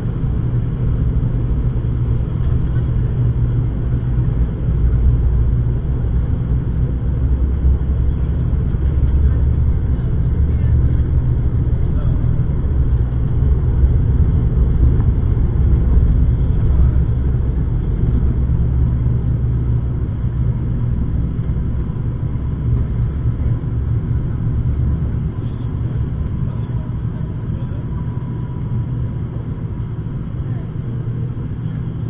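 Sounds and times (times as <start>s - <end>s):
propeller drone inside cabin: 0.0s - 32.0s
runway rumble: 0.0s - 32.0s.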